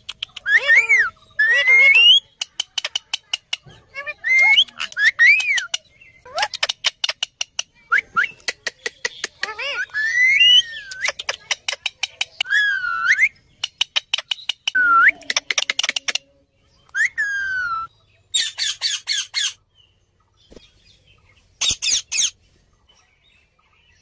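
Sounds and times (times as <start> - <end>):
parakeet rapid clicks: 0.0 - 0.7, 2.3 - 3.7, 13.6 - 16.2.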